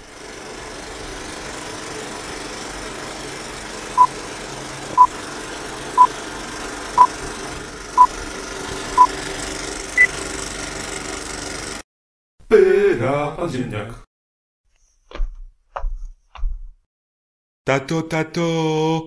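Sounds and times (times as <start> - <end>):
film projector whirring: 0.0 - 11.8.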